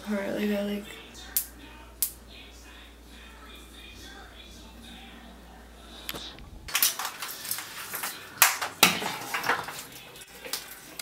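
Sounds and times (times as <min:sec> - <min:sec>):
objects rustling and clattering: 0:06.1 - 0:11.0.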